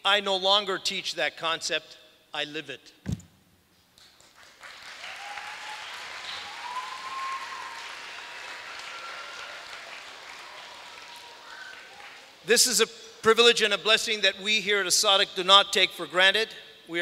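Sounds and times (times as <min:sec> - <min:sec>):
audience applauding: 0:04.2 - 0:12.4.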